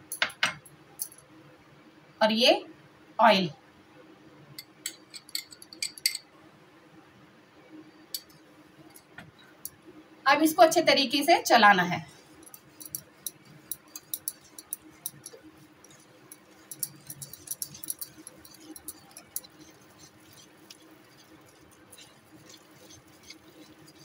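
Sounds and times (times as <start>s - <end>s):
whisk clicking against glass bowl: 12.2s - 24.0s.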